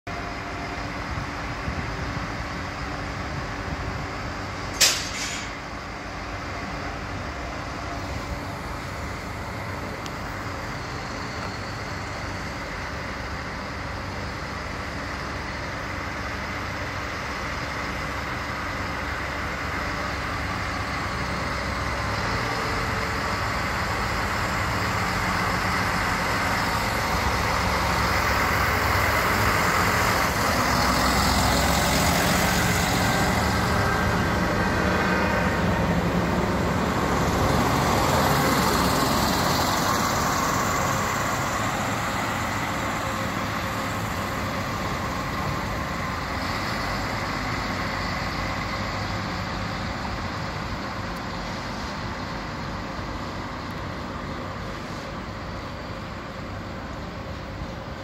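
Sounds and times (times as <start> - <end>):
diesel railcar running: 0.1 - 58.0
loud burst of hiss: 4.8 - 5.6.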